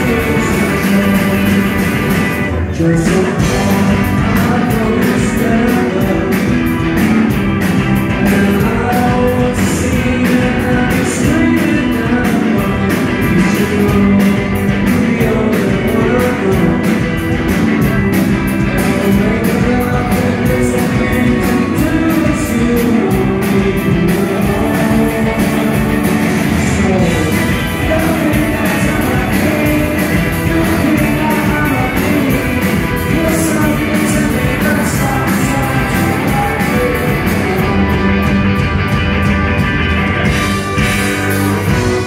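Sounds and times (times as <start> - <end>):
electric guitars: 0.0 - 42.0
rock band playing live: 0.0 - 42.0
steady drum beat: 0.0 - 42.0.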